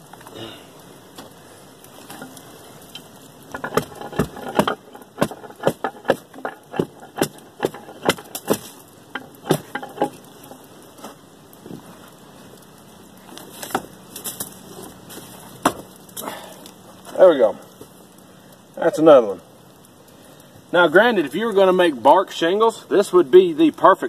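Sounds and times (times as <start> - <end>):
bark cracking off log: 1.1 - 11.9, 13.2 - 17.0.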